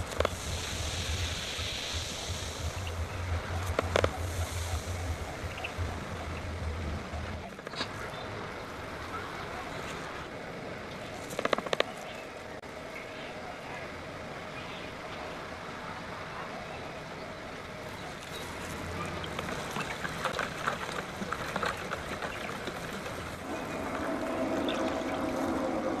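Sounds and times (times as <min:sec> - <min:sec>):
steady hum: 0:00.0 - 0:11.4, 0:12.1 - 0:26.0.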